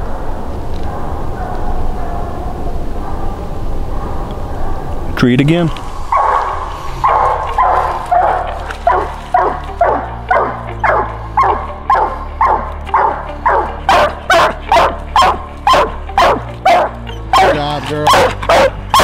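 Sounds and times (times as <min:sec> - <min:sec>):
hound barking: 0:00.0 - 0:05.2, 0:06.1 - 0:19.0.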